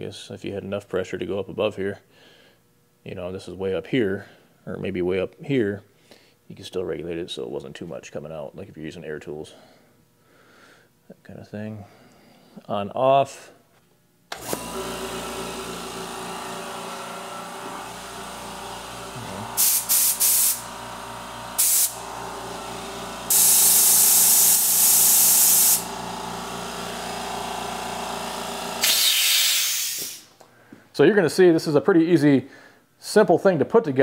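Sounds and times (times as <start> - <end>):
air compressor running: 14.3 - 30.4
compressed air hissing blasts: 19.2 - 20.8, 21.6 - 22.0, 23.2 - 25.9, 28.8 - 30.4.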